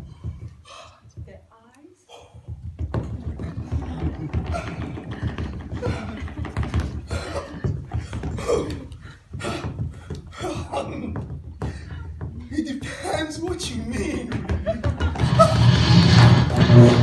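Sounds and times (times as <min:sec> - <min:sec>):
person crying and groaning: 0:08.3 - 0:09.8.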